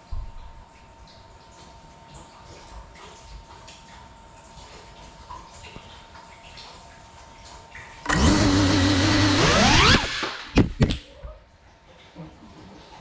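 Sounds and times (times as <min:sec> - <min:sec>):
drone motors whining: 0:08.1 - 0:10.9.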